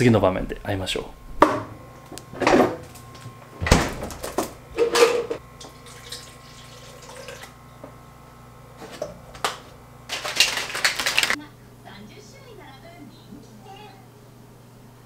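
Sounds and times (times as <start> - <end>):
water pouring into plastic cup: 5.8 - 7.5.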